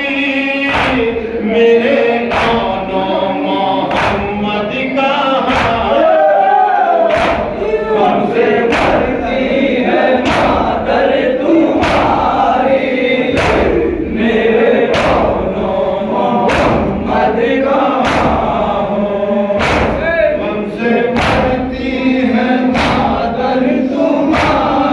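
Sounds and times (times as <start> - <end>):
men chanting a lament: 0.0 - 24.9
palms slapping chests: 0.6 - 1.3, 2.2 - 3.0, 3.8 - 4.6, 5.4 - 6.0, 7.1 - 15.6, 16.2 - 18.8, 19.6 - 20.4, 21.1 - 22.0, 22.6 - 23.4, 24.2 - 24.9.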